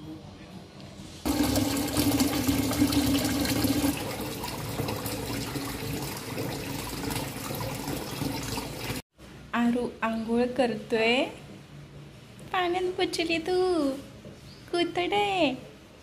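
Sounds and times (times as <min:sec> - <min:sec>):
tap water pouring into metal pot: 0:01.3 - 0:09.0.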